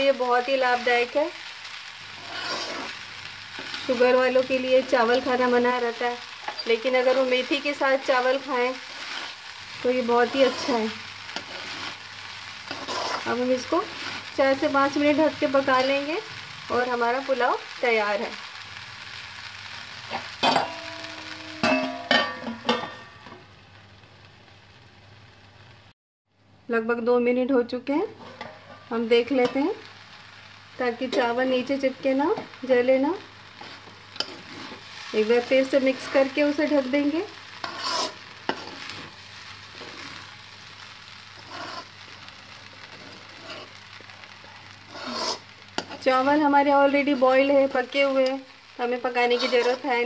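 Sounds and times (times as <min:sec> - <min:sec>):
faint sizzle of rice frying: 0:00.0 - 0:26.0, 0:26.7 - 0:50.0
metal spatula scraping wok: 0:02.2 - 0:03.0, 0:03.6 - 0:16.0, 0:28.1 - 0:29.6, 0:33.6 - 0:39.2, 0:41.4 - 0:41.9, 0:42.8 - 0:43.8, 0:44.8 - 0:46.4, 0:49.0 - 0:50.0
metallic clanks of lid on pan: 0:21.6 - 0:23.0.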